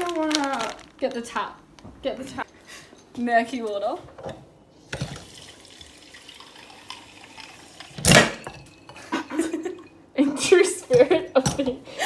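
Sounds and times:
tap water pouring into pasta bowl: 0:04.9 - 0:08.2.

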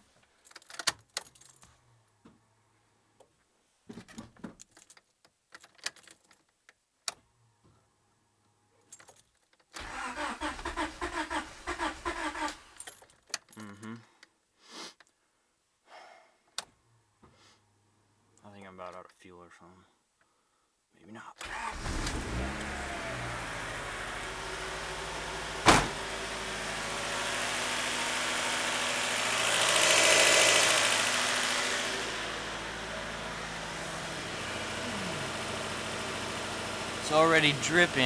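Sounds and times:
car keys jangling in ignition: 0:00.5 - 0:01.7, 0:04.6 - 0:06.6, 0:08.8 - 0:10.3, 0:12.2 - 0:13.8
starter cranking engine: 0:09.8 - 0:12.6, 0:29.2 - 0:31.6.

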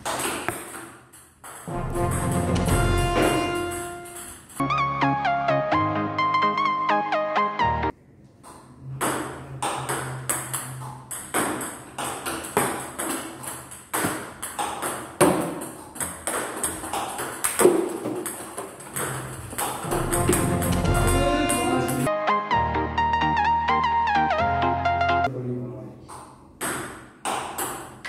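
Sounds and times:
music: 0:01.7 - 0:08.0, 0:19.8 - 0:25.3.

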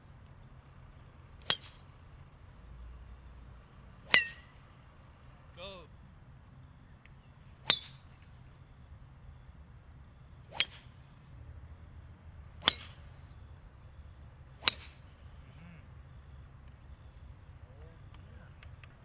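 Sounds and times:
golf driver striking ball: 0:12.6 - 0:13.0, 0:14.6 - 0:15.0.

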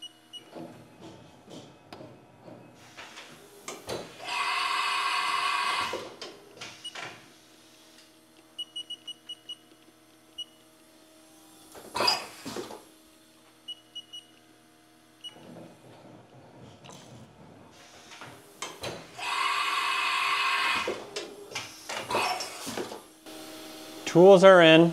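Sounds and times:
loud machine whirr: 0:04.1 - 0:06.3, 0:19.0 - 0:24.9.

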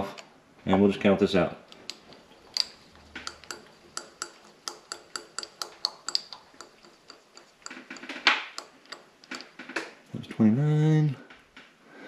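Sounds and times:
handwheel ticking: 0:02.5 - 0:09.8.

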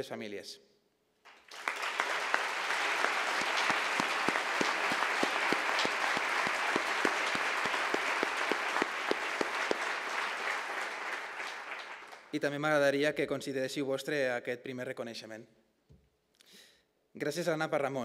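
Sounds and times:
loud rhythmic claps: 0:01.2 - 0:12.4
audience applauding: 0:01.3 - 0:12.4.

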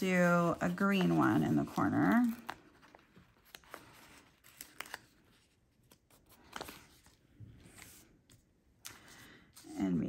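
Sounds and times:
paper sticker sheet rustling: 0:00.0 - 0:10.0.

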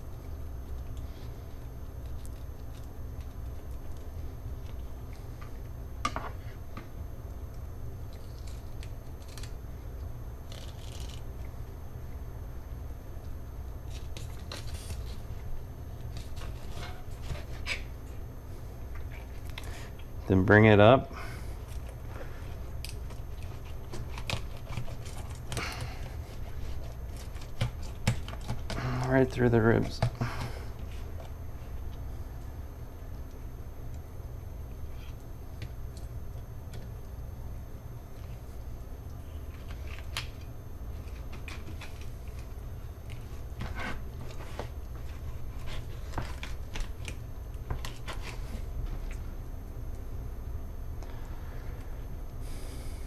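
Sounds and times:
low steady hum: 0:00.0 - 0:53.0
blade clicking and scraping on bone: 0:10.4 - 0:11.2, 0:22.9 - 0:29.1.

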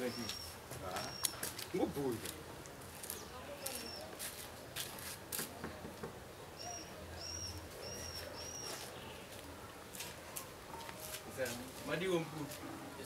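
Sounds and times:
small bird chirping: 0:00.0 - 0:01.4, 0:03.0 - 0:04.1, 0:06.5 - 0:09.3.

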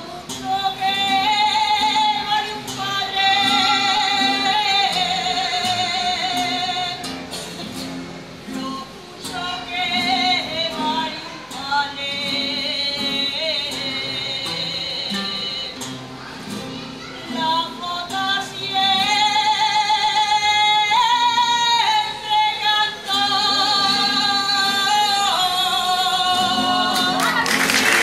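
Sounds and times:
woman singing with vibrato: 0:00.0 - 0:07.2, 0:08.5 - 0:15.9, 0:17.2 - 0:28.0
strummed guitars: 0:00.0 - 0:28.0.

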